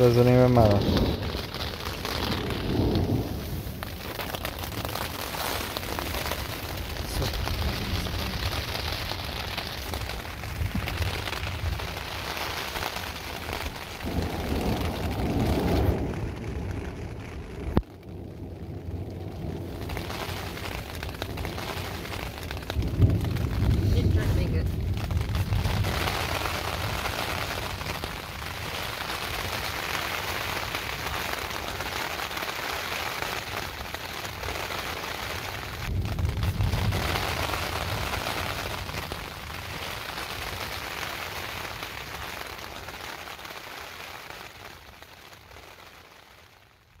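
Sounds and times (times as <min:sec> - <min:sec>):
thunder rumbling: 0:00.0 - 0:43.0
steady rain: 0:00.0 - 0:47.0.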